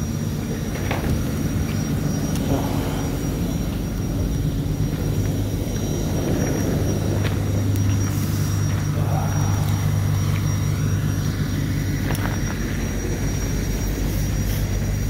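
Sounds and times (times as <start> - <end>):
road noise: 0.0 - 15.0
truck engine drone: 0.0 - 15.0.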